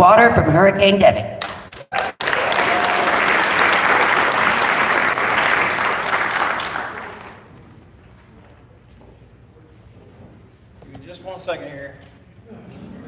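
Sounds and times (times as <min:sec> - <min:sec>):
audience applauding: 0:01.7 - 0:07.6.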